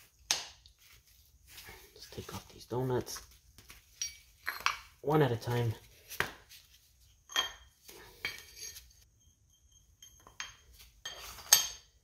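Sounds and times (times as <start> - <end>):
metal spacers clinking: 3.8 - 5.1, 7.2 - 12.0.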